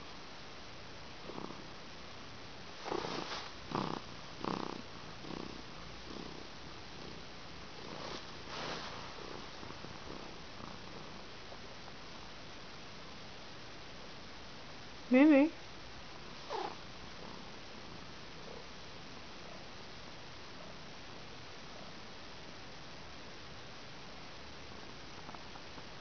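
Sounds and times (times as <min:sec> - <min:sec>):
cat purring: 0:01.1 - 0:01.8, 0:02.7 - 0:12.2, 0:16.2 - 0:19.6, 0:24.8 - 0:26.0.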